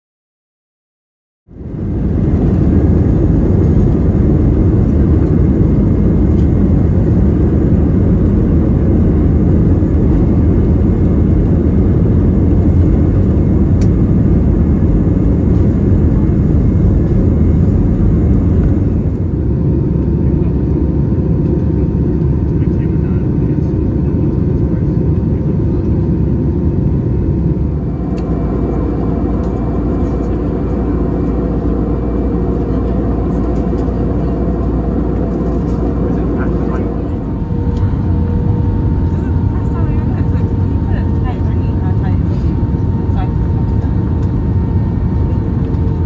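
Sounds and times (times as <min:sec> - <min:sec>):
jet engines roaring in cabin: 0:01.5 - 0:46.0.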